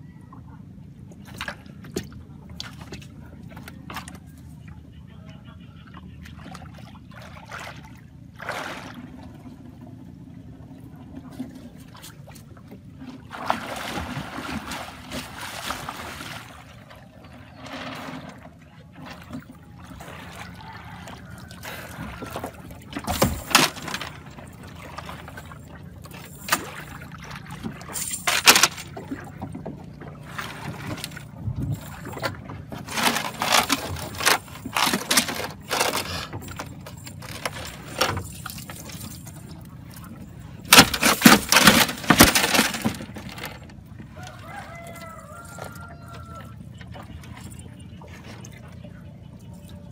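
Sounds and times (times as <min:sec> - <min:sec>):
water splashing off a net: 0:13.2 - 0:16.8.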